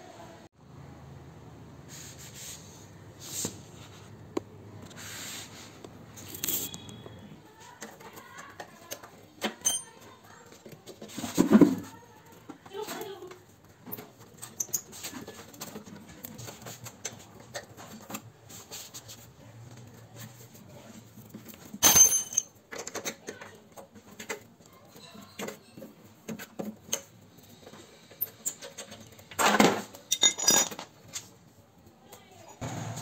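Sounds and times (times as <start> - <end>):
small metal clinks and rattles: 8.1 - 10.7, 21.5 - 25.9, 30.0 - 31.3.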